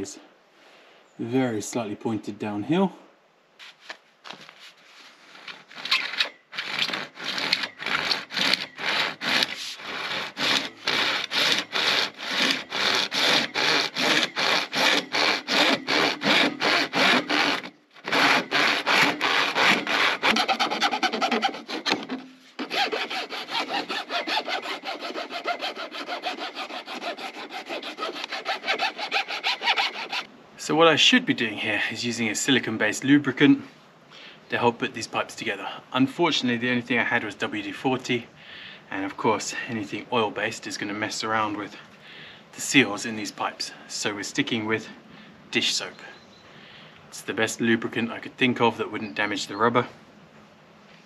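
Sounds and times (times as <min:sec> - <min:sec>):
handsaw cutting plastic pipe: 0:05.3 - 0:30.3
metal file scraping pipe edge: 0:05.3 - 0:30.3.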